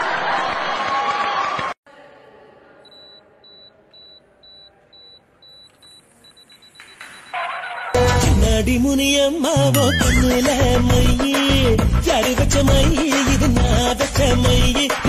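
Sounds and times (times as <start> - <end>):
high electronic beeping: 2.9 - 7.4.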